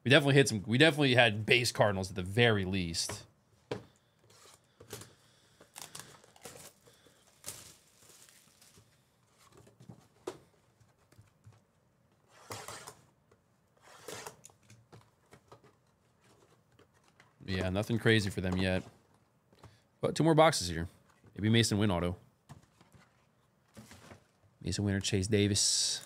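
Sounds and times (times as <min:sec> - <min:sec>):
card wrappers tearing and crinkling: 0:05.7 - 0:09.0.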